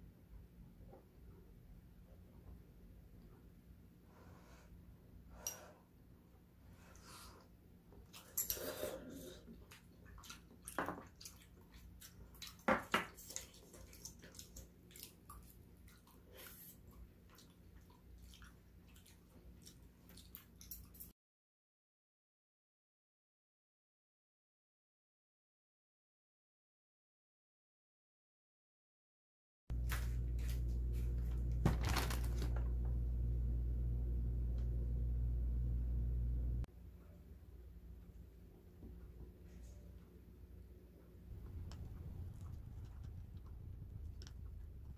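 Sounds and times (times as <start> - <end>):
person chewing food wetly: 9.3 - 21.1
steady low hum: 29.7 - 44.9.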